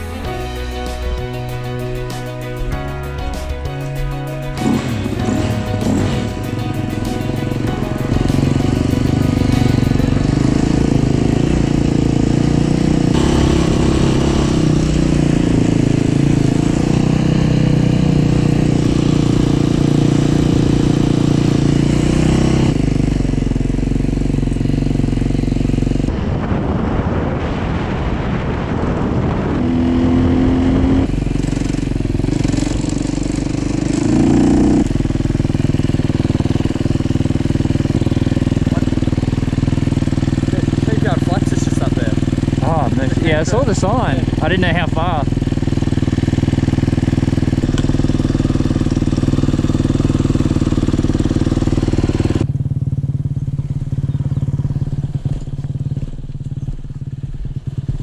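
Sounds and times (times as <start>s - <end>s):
dirt bike engine running: 0.0s - 27.9s, 28.6s - 58.0s
wind noise on microphone: 26.0s - 33.0s.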